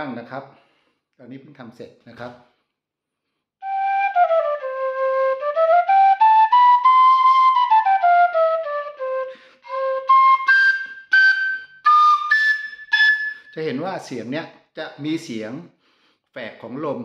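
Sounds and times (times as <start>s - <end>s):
breathy wooden flute scale: 3.6s - 13.7s.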